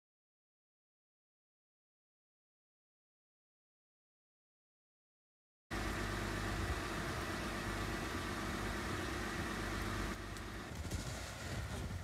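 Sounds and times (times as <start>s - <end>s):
car engine idling: 5.7s - 12.0s.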